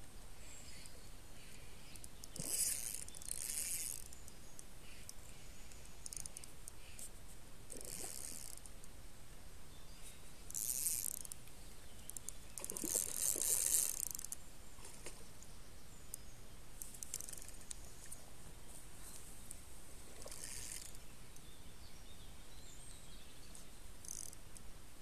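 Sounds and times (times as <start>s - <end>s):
fishing reel cranking: 0.6s - 0.9s, 1.8s - 4.2s, 5.0s - 7.0s, 7.7s - 8.7s, 10.5s - 11.4s, 12.1s - 14.4s, 17.0s - 17.7s, 20.2s - 21.0s, 24.0s - 24.4s.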